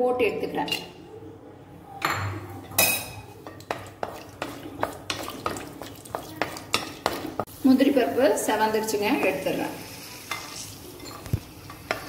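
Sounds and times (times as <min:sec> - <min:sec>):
nuts frying in oil: 0:03.6 - 0:12.0
wooden spatula scraping a pan: 0:03.7 - 0:12.0.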